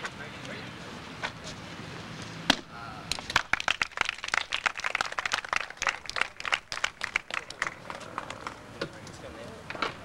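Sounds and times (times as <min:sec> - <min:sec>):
crowd clapping: 0:03.3 - 0:08.6.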